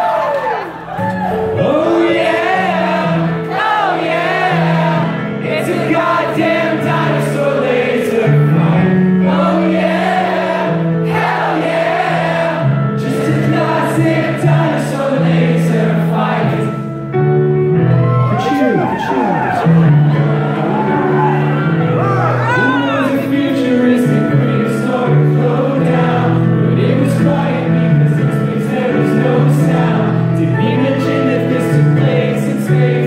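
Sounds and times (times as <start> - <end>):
synth keyboard chords: 1.4 - 33.0
man singing slow melody: 22.5 - 25.0.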